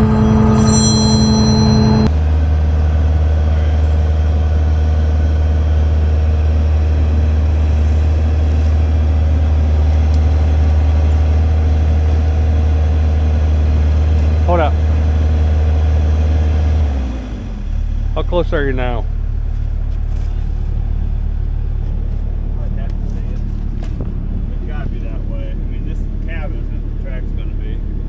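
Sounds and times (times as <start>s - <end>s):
high-pitched mechanical whine: 0.0s - 14.8s
diesel engine low drone: 0.0s - 28.0s.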